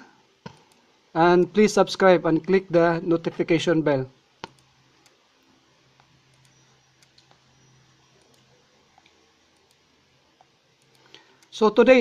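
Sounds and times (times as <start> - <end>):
faint low hum: 0.0 - 12.0
computer mouse clicking: 0.4 - 0.9, 4.4 - 11.6.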